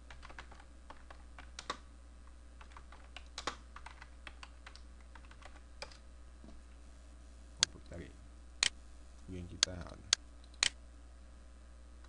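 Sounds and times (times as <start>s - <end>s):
typing on computer keyboard: 0.1s - 1.8s, 2.6s - 6.0s.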